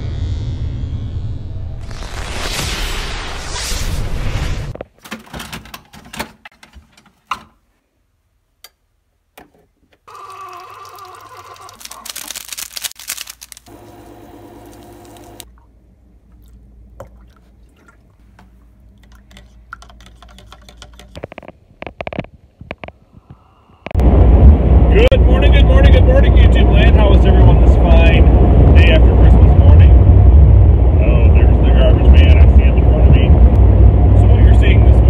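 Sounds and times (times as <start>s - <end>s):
coffee maker hissing and whirring: 13.7s - 15.4s
milk pouring: 16.3s - 21.2s.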